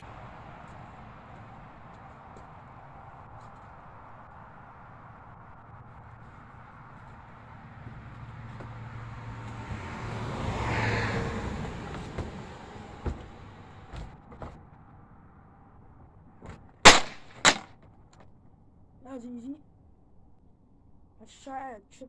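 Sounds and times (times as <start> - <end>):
loud sharp smack: 16.9 - 17.7.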